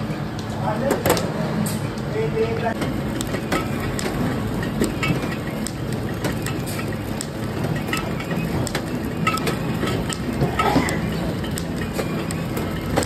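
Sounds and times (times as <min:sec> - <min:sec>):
packing machine clattering: 0:02.4 - 0:13.0
sharp machine clicks: 0:02.8 - 0:13.0.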